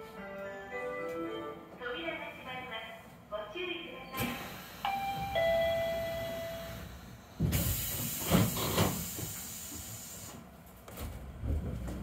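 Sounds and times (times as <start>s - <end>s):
train doors thudding shut: 7.4s - 9.4s
compressed-air hiss: 7.5s - 10.4s.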